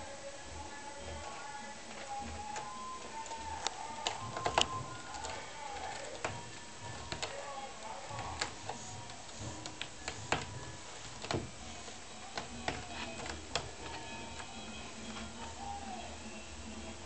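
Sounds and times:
cat claws scratching rope: 1.9s - 14.5s.

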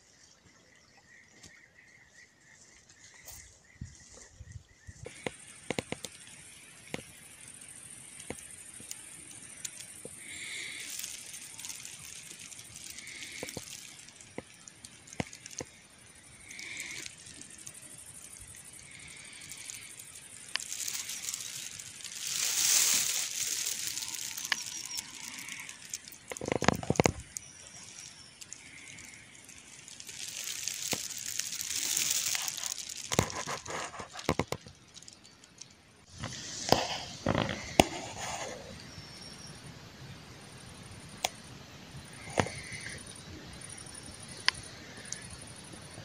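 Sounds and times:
leaves rustling: 2.5s - 39.1s
small crackles and clicks: 5.0s - 39.5s, 41.0s - 46.0s.

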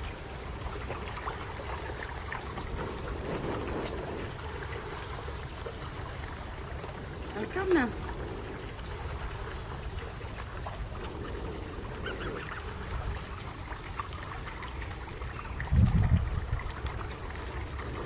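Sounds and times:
steady low rumble: 0.0s - 18.0s
gosling peeping: 11.8s - 13.4s.

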